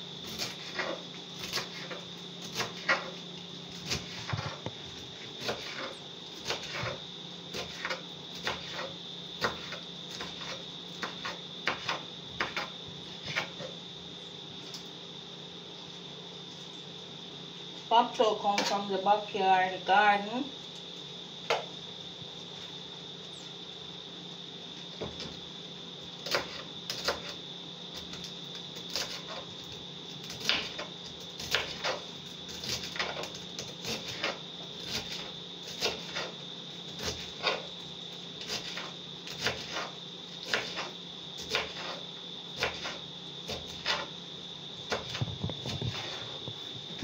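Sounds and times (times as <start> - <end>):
knife chopping on wooden board: 5.4 - 13.7, 42.6 - 44.1.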